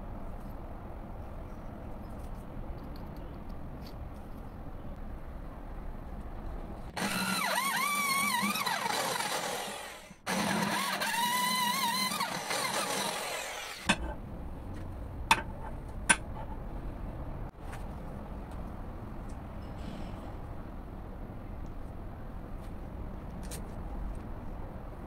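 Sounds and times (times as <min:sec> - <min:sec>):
electric drill whining: 0:07.0 - 0:13.9.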